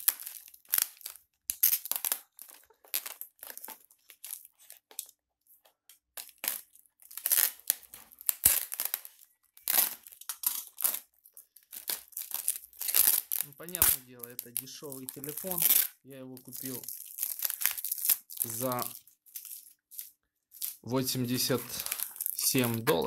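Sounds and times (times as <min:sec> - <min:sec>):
plastic cushion wrap crinkling: 0:00.0 - 0:23.0.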